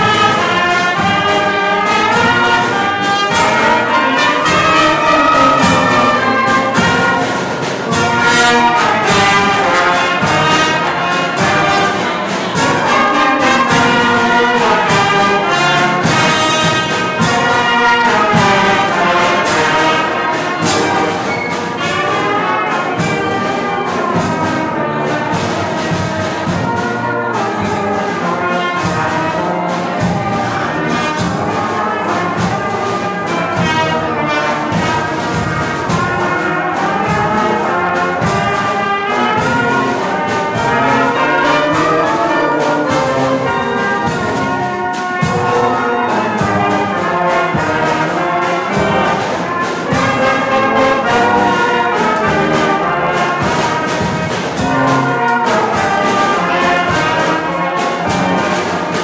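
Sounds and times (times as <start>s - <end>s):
brass horns playing melody: 0.0s - 59.0s
snare drums: 0.0s - 59.0s.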